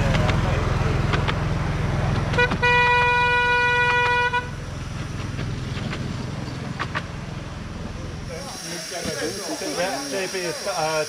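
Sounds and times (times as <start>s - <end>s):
engine running: 0.0s - 11.0s
locomotive horn toot: 2.3s - 4.7s.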